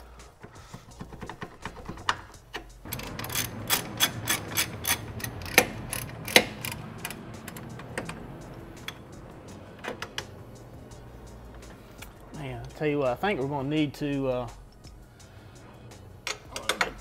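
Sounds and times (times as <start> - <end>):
socket ratchet clicking: 0.8 - 9.0.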